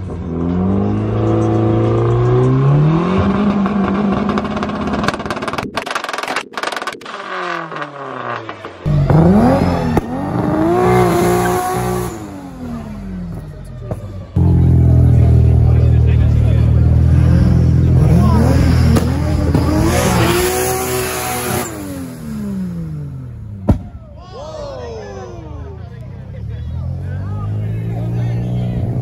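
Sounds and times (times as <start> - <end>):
car engine revving: 0.0 - 23.7
second engine revving: 7.1 - 13.4, 14.4 - 23.6.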